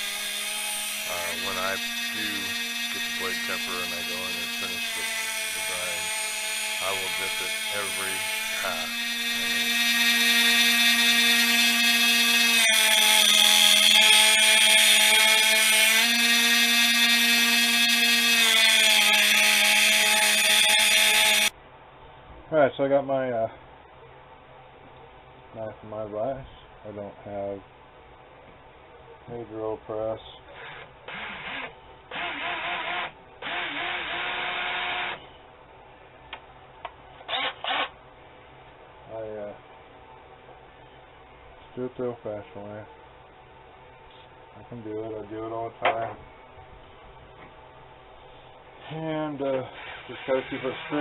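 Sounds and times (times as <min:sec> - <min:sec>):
cordless drill boring metal: 0:00.0 - 0:21.5, 0:30.5 - 0:35.2, 0:37.2 - 0:38.0, 0:49.7 - 0:51.0.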